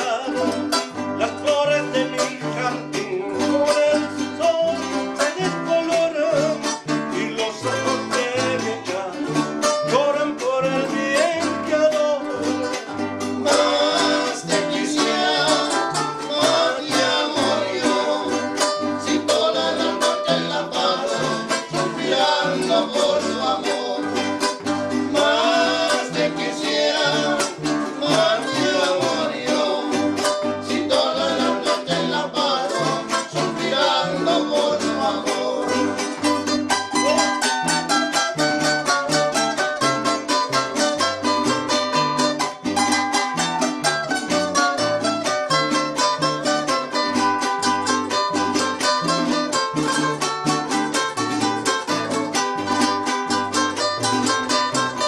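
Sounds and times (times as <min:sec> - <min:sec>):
men singing: 0:00.0 - 0:39.7
plucked bass guitar line: 0:00.0 - 0:55.0
strummed guitars: 0:00.0 - 0:55.0.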